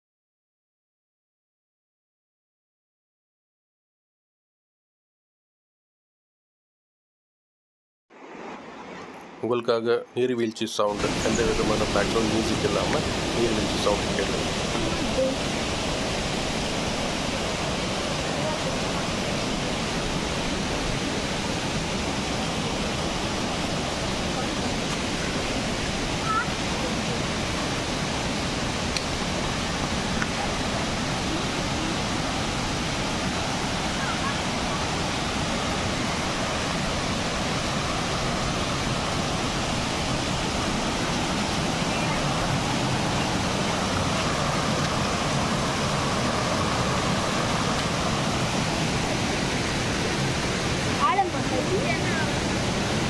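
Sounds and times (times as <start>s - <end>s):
waterfall rushing: 10.8s - 53.0s.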